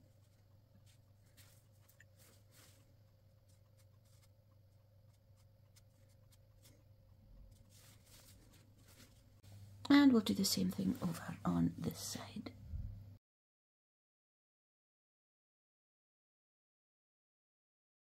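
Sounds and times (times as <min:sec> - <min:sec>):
paintbrush dabbing on paper: 0:00.0 - 0:12.4
faint steady hum: 0:00.0 - 0:13.2.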